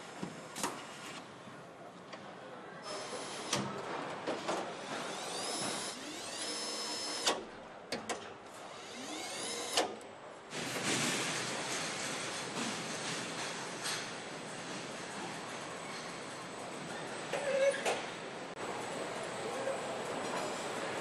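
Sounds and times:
assembly hall noise: 0.0s - 21.0s.

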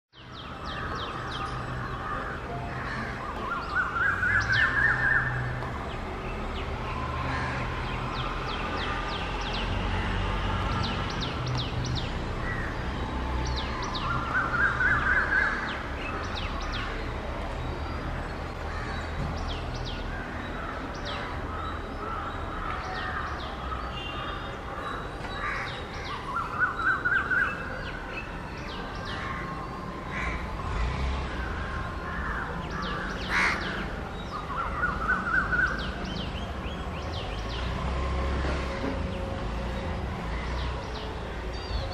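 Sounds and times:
crows cawing: 32.1s - 33.8s.

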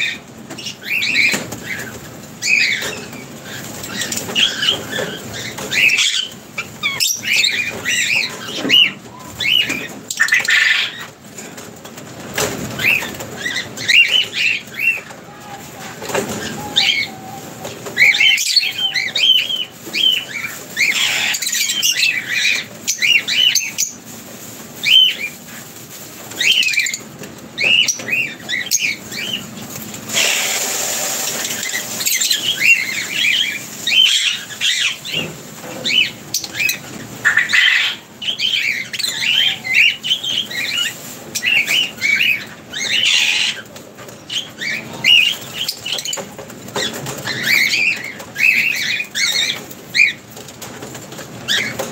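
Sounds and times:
birds chirping and squeaking: 0.0s - 51.9s.

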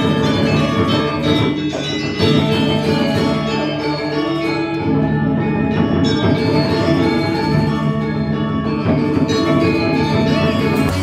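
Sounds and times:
metallophones ringing: 0.0s - 11.0s
drum: 8.9s - 11.0s.

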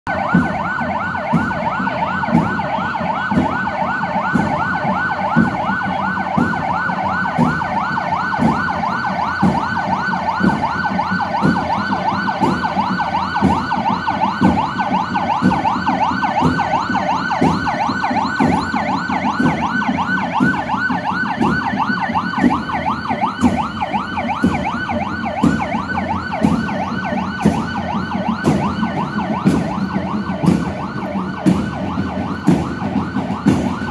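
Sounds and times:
police sirens yelping: 0.0s - 33.9s
engines humming: 0.1s - 33.9s
marching band drums thumping: 0.1s - 33.9s.

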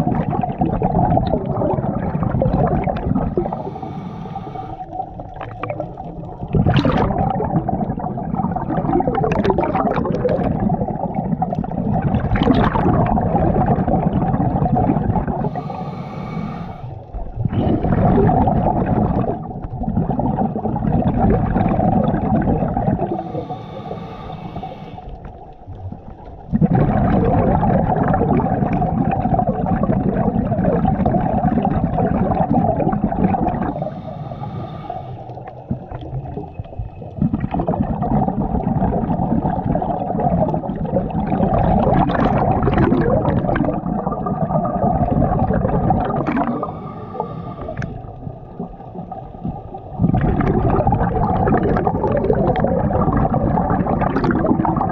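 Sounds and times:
bubbling exhalation underwater: 0.0s - 3.7s, 4.8s - 15.8s, 17.1s - 23.6s, 26.0s - 34.0s, 35.4s - 54.9s
regulator inhalation hiss: 3.5s - 5.0s, 15.4s - 17.1s, 23.2s - 25.2s, 33.6s - 35.7s, 46.6s - 47.8s.

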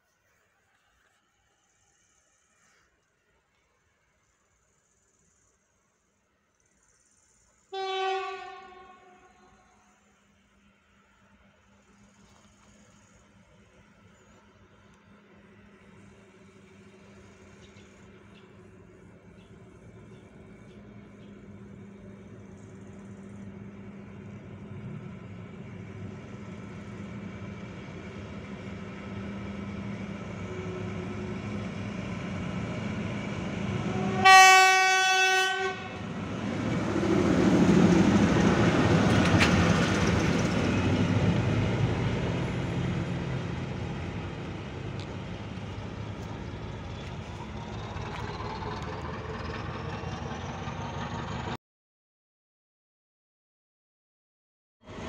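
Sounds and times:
diesel locomotive engine: 7.0s - 51.6s
locomotive horn blast: 7.7s - 9.6s, 30.4s - 31.8s, 33.7s - 36.1s.

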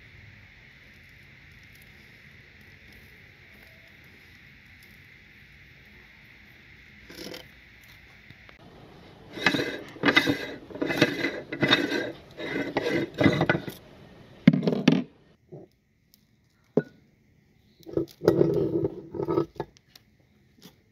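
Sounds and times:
metal parts clattering: 9.4s - 13.8s.

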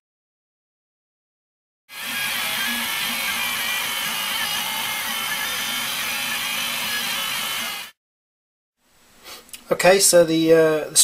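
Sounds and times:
stepper motors and fans whining: 1.9s - 8.0s.

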